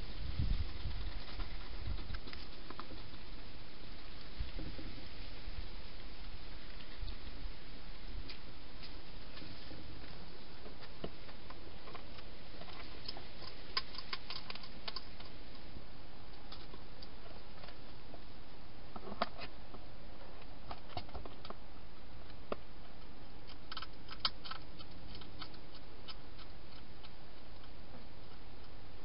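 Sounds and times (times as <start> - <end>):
steady hiss: 0.0 - 29.0
hedgehog clicks and crunches: 10.8 - 15.7, 20.6 - 28.8.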